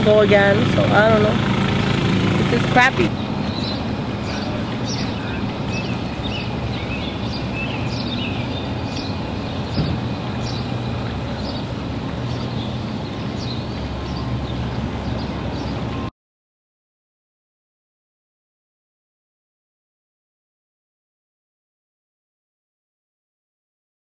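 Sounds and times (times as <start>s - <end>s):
birds chirping: 0.0s - 16.1s
engine hum: 0.0s - 16.1s.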